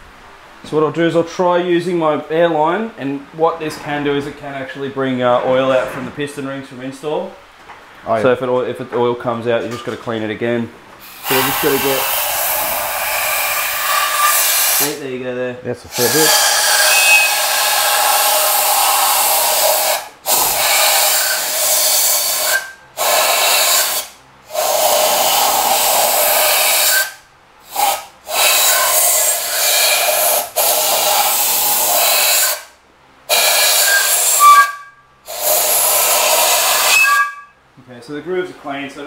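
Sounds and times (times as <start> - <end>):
compressed air blow gun blasting: 11.0 - 15.0, 15.9 - 32.7, 33.3 - 37.4.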